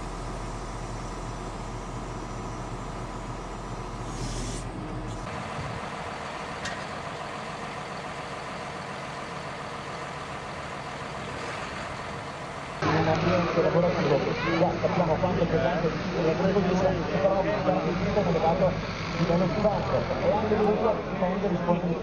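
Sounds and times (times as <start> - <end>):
tractor diesel engine running: 0.0 - 22.0
short hiss: 4.0 - 4.7.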